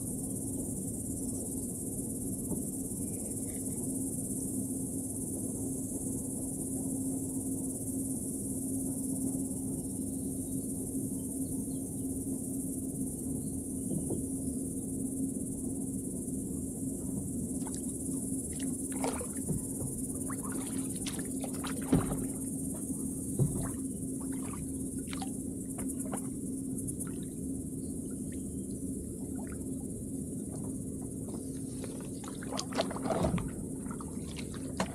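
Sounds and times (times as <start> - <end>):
insects droning: 0.0 - 34.9
low steady hum: 0.0 - 34.9
kayak paddle splashing: 17.6 - 26.4, 30.5 - 34.9.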